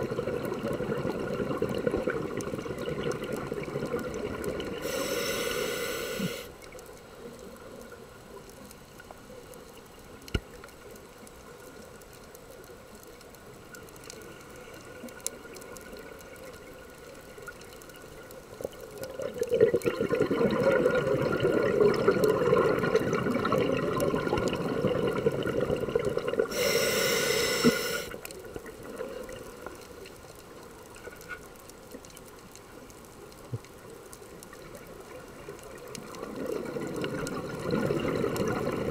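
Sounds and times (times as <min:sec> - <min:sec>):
faint underwater clicks: 0:00.0 - 0:38.9
scuba regulator hiss: 0:04.8 - 0:06.5, 0:26.5 - 0:28.2
exhaust bubbles rushing: 0:19.3 - 0:26.5, 0:36.4 - 0:38.9.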